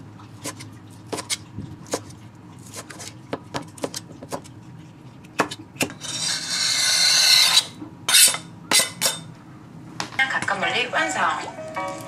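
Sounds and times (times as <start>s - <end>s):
knife chopping on plastic board: 2.7s - 4.5s, 5.4s - 6.0s
knife scraping across board: 6.0s - 9.2s.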